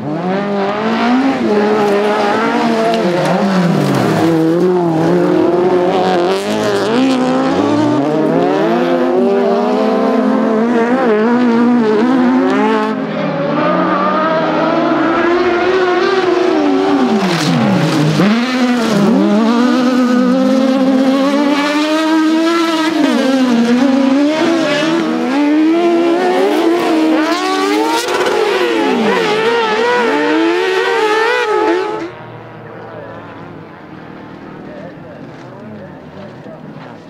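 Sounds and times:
buggy engine revving: 0.0s - 37.0s.

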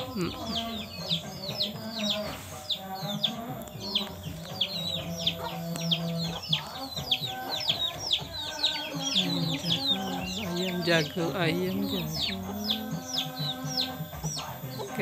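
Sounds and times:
chicks peeping: 0.0s - 15.0s.

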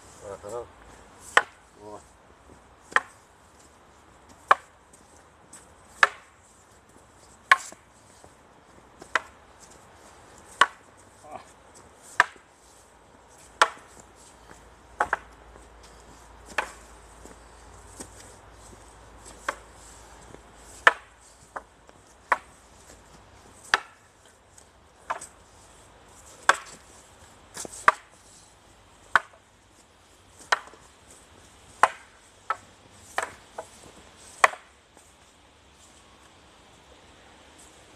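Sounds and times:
wooden staffs clacking: 1.3s - 1.6s, 6.0s - 6.4s, 7.5s - 7.8s, 9.0s - 9.4s, 10.5s - 10.9s, 12.2s - 12.5s, 13.4s - 14.0s, 15.0s - 15.3s, 16.5s - 16.9s, 19.2s - 19.6s, 20.7s - 22.6s, 23.6s - 24.4s, 26.4s - 26.9s, 27.6s - 28.2s, 30.4s - 30.9s, 31.7s - 34.7s.

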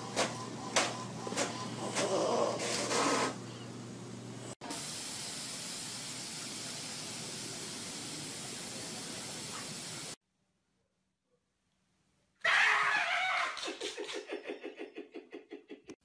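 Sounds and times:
steady even hiss: 4.7s - 10.2s.

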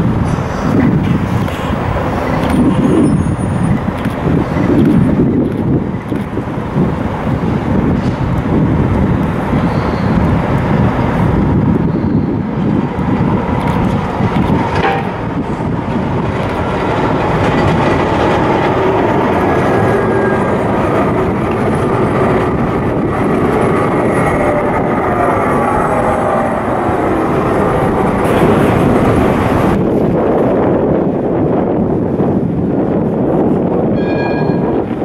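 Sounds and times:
tram motor whine: 0.0s - 30.8s
tram rumbling over rails: 0.0s - 35.0s
sharp clack: 13.6s - 15.5s.

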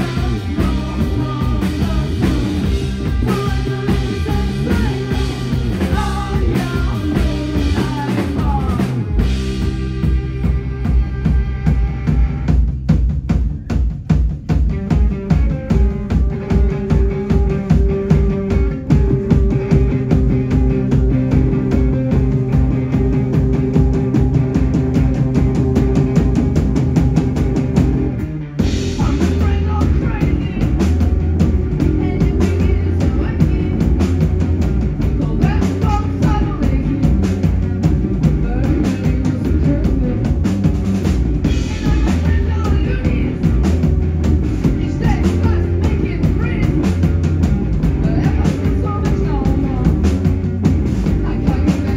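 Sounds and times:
woman singing: 0.0s - 11.4s, 28.8s - 31.0s, 31.8s - 34.4s, 35.0s - 37.6s, 38.2s - 40.4s, 41.5s - 43.7s, 44.6s - 47.2s, 47.9s - 50.4s, 51.0s - 51.9s
bass line: 0.0s - 51.9s
drum kit beat: 0.0s - 51.9s
electric guitar: 0.0s - 51.9s.

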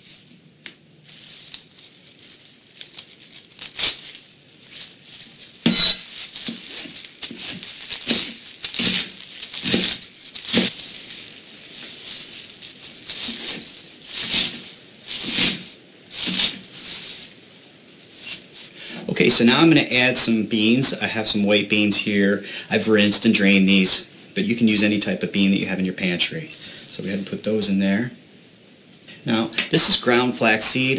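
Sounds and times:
kale being torn and chopped: 0.7s - 17.4s.

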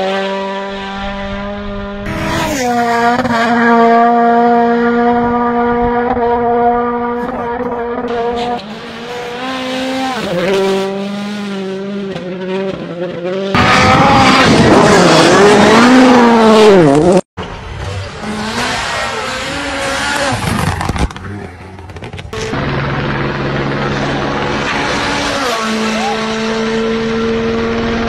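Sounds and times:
rally car engines revving: 0.0s - 28.0s.

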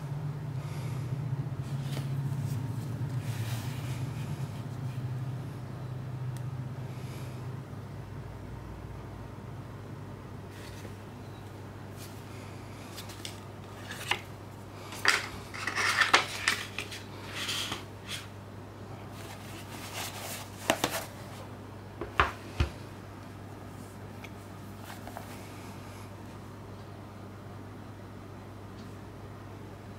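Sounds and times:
packaging taps and rustles: 19.6s - 21.2s.

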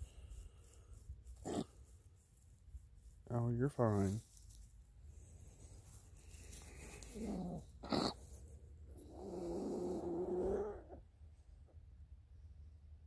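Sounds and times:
low animal calls: 9.0s - 11.1s.

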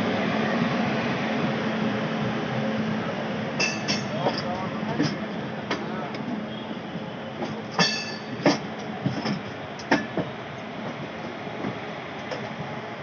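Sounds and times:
train wheels rumbling on rails: 0.0s - 13.0s
wheels clacking over rail joints: 3.6s - 6.4s, 7.4s - 12.6s.

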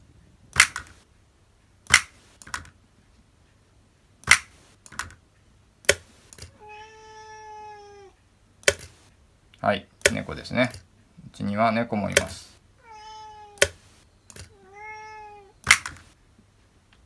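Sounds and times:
cat meowing: 6.5s - 8.2s, 12.8s - 13.7s, 14.5s - 15.6s.

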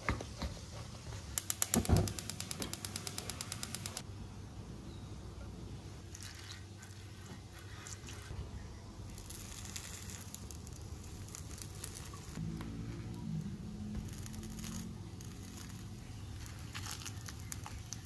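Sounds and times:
gas burner running: 1.3s - 4.0s.

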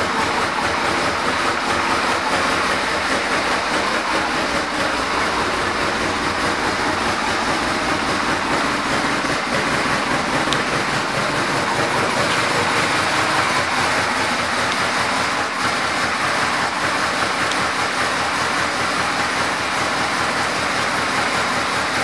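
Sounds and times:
motorcycle engine idling: 0.0s - 22.0s.

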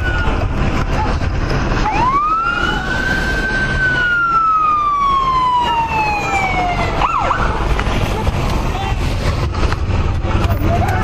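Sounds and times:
police siren wailing: 0.0s - 0.6s, 1.7s - 7.7s
siren yelp: 1.8s - 7.6s.

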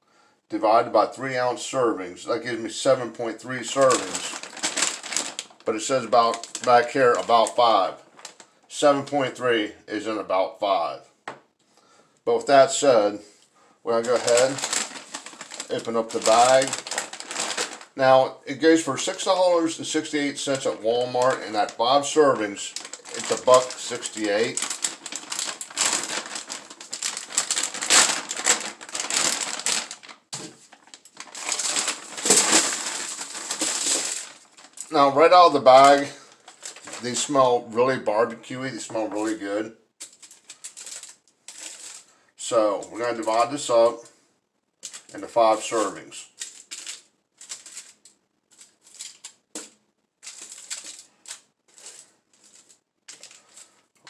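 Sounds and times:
plastic bag and foil crinkling: 3.4s - 8.6s, 13.9s - 37.9s, 38.5s - 42.2s, 42.8s - 43.9s, 44.8s - 54.0s.

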